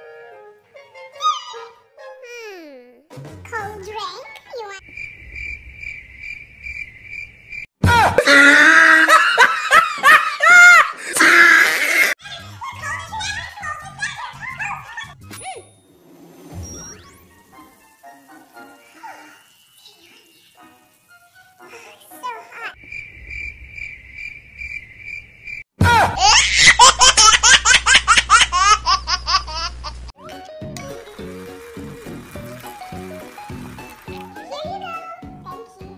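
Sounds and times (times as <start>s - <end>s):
cricket chirping: 4.8s - 7.7s, 22.8s - 25.6s
exaggerated comic laughter: 7.8s - 13.0s, 25.8s - 29.9s.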